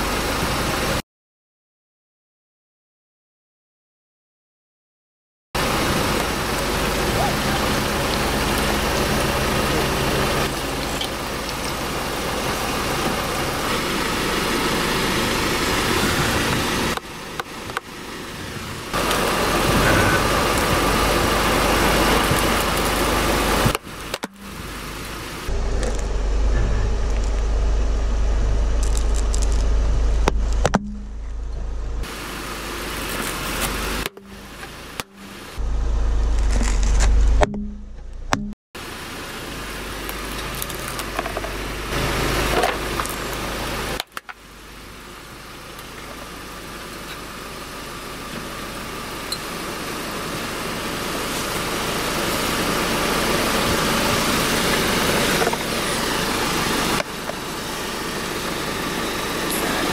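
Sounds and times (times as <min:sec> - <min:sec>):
car engine idling: 0:05.6 - 0:59.9.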